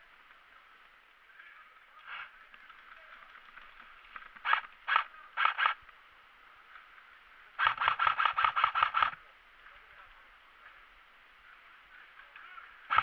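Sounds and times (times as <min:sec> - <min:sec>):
airsoft gun firing: 0:04.4 - 0:05.8, 0:07.6 - 0:09.2.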